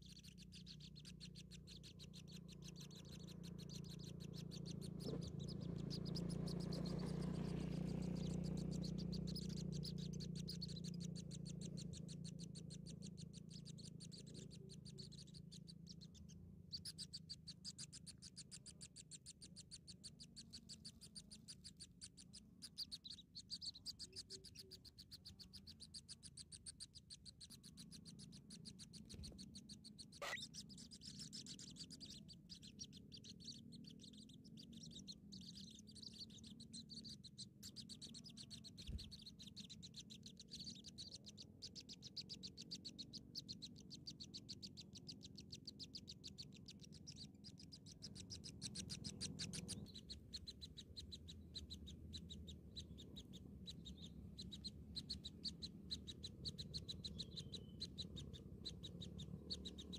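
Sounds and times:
low hum: 0.0s - 25.8s
nestling birds chirping: 0.0s - 59.9s.

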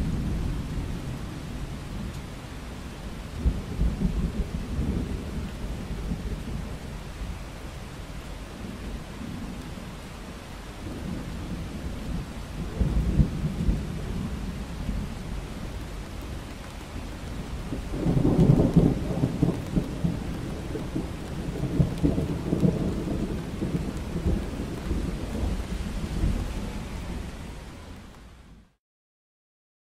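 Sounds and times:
steady rain: 0.0s - 28.8s
rolling thunder: 3.3s - 6.9s, 10.8s - 15.8s, 17.0s - 27.6s.

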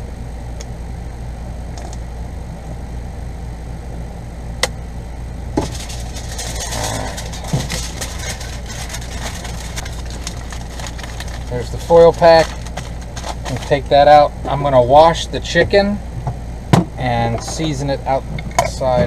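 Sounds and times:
steady low hum: 0.0s - 19.0s
aluminium foil crinkling: 5.6s - 14.0s.

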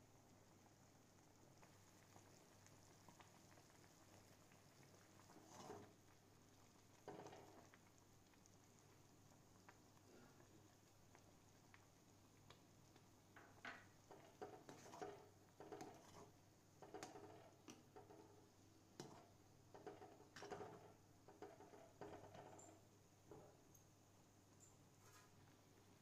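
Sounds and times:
thick sauce bubbling: 0.0s - 23.6s
spatula scraping iron pan: 14.1s - 17.4s.

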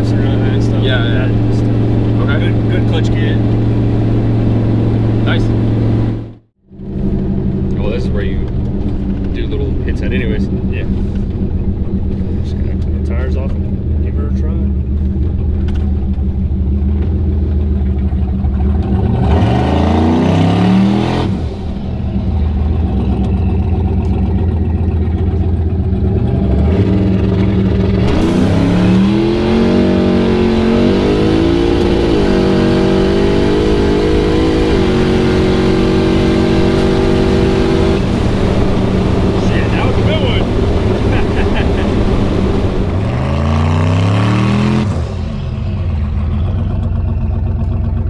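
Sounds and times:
truck engine revving hard: 18.6s - 25.0s, 25.9s - 46.6s.

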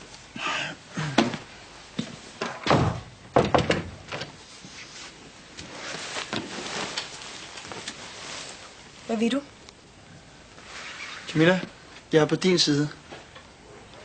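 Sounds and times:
door shutting with heavy thud: 2.4s - 4.3s.

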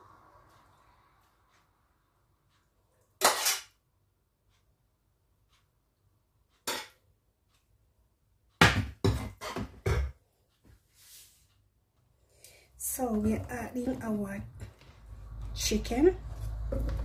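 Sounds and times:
metal spoon scraping a pan: 3.2s - 3.8s.

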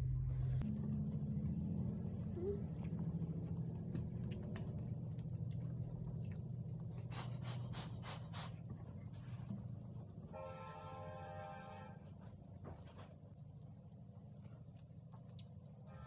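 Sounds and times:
steady low hum: 0.0s - 16.0s
people chewing and slurping: 0.3s - 10.2s.

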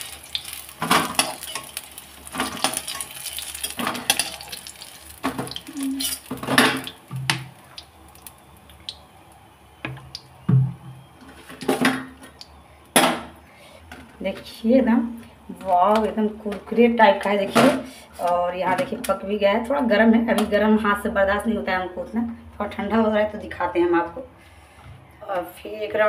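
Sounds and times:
frying oil sizzling: 0.0s - 12.6s
metal utensil scraping a pan: 0.4s - 6.8s.

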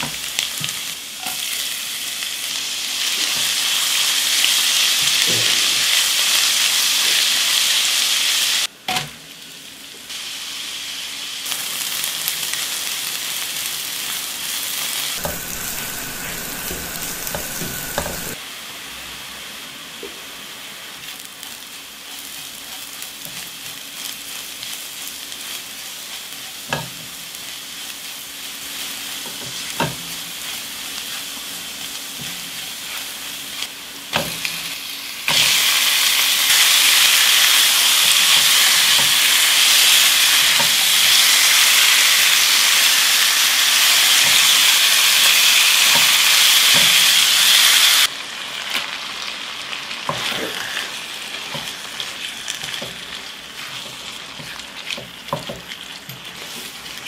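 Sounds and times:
food sizzling in hot oil: 0.0s - 57.0s
spatula scraping a pan: 15.2s - 18.4s.

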